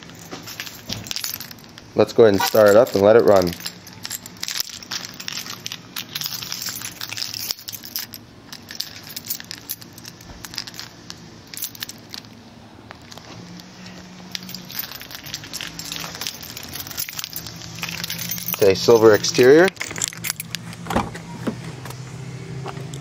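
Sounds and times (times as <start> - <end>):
keys clicking and rattling: 0.0 - 20.8
rustling handling noise: 0.0 - 22.0.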